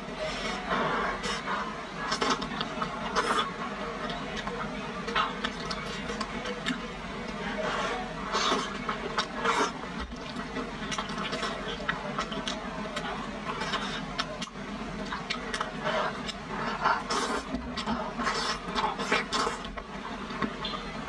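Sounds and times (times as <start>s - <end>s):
mouth clicks and smacks chewing: 5.1s - 7.4s, 9.1s - 20.9s
wet noodle slurping: 7.6s - 12.6s, 15.1s - 19.8s.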